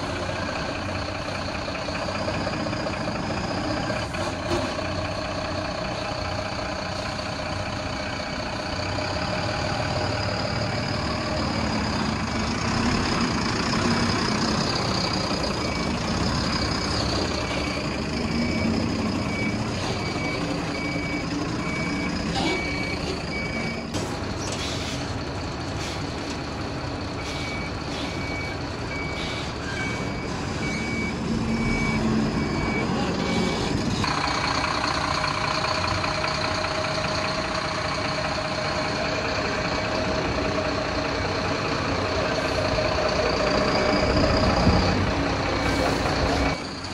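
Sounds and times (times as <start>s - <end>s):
diesel truck engine running: 0.0s - 46.9s
reversing alarm beeps: 13.3s - 24.0s, 27.1s - 34.5s.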